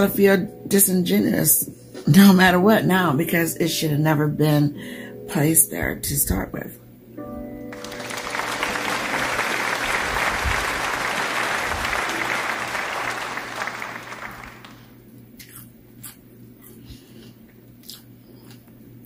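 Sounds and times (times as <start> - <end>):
applause: 7.7 - 15.0
chewing crunchy greens: 15.2 - 18.8.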